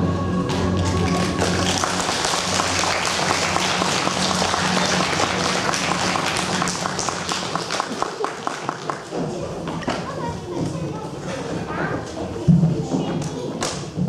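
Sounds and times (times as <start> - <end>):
audience applauding: 0.4 - 9.2.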